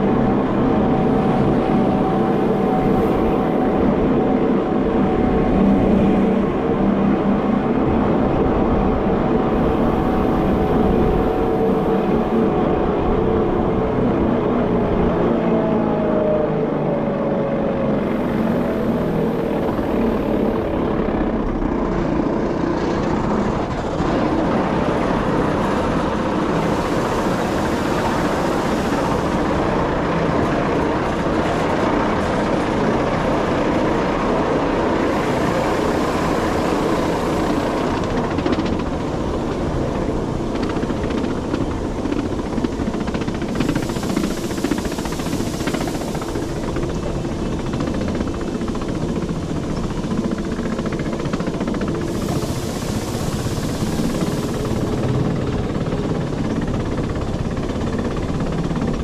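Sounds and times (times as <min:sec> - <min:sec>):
wheel-on-rail noise: 0:17.3 - 0:59.0
train motors droning: 0:17.6 - 0:48.9, 0:51.4 - 0:56.2
high hiss: 0:52.0 - 0:55.0.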